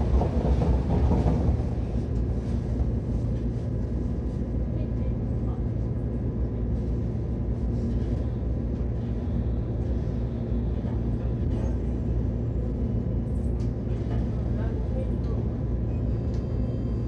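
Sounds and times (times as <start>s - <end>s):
electric train low hum: 0.0s - 17.0s.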